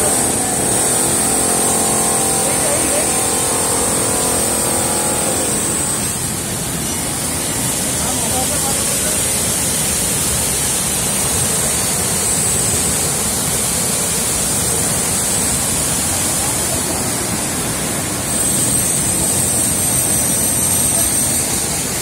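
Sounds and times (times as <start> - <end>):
waterfall rushing over rock: 0.0 - 22.0.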